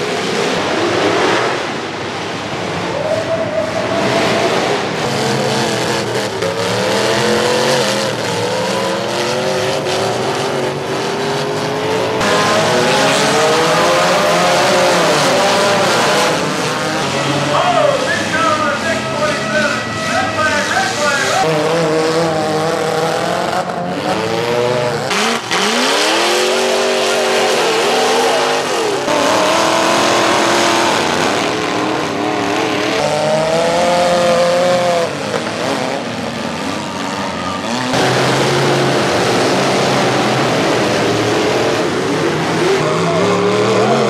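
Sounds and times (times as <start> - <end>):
cars colliding: 0.0 - 23.8
car engines revving hard: 0.0 - 44.0
engine and tyre noise: 0.0 - 44.0.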